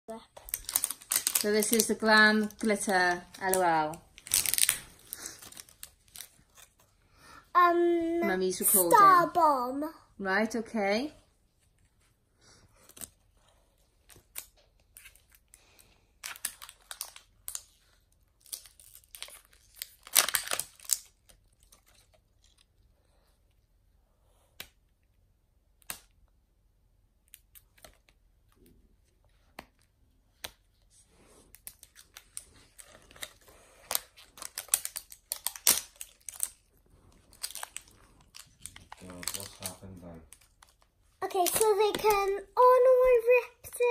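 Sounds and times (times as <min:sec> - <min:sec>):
wrapping crinkling and tearing: 0:00.1 - 0:09.3, 0:12.7 - 0:23.2, 0:27.3 - 0:43.9.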